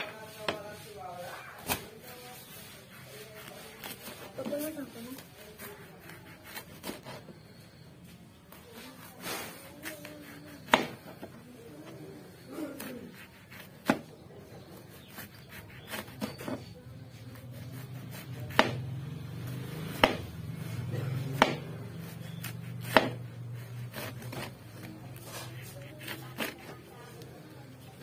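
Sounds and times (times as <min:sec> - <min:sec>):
knife chopping on cutting board: 0:10.2 - 0:11.2, 0:12.8 - 0:14.1, 0:17.8 - 0:18.9, 0:19.5 - 0:20.4, 0:21.0 - 0:24.5.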